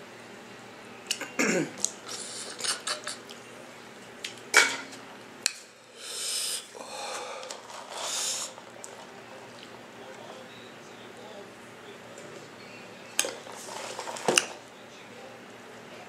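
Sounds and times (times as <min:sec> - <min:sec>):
eating sounds: 0:01.1 - 0:03.5, 0:06.1 - 0:10.5
hissy sounds: 0:05.9 - 0:09.4.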